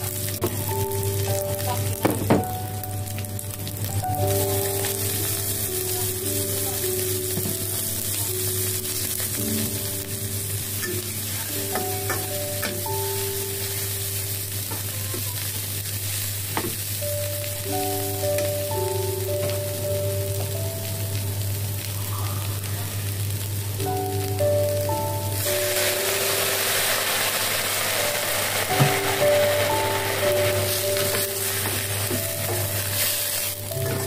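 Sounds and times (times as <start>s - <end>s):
oil sizzling in a wok: 0.0s - 34.0s
soft background music: 0.0s - 34.0s.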